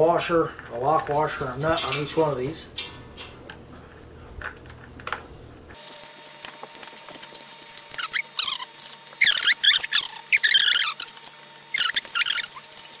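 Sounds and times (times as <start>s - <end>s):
high squeaky chirps: 7.9s - 13.0s.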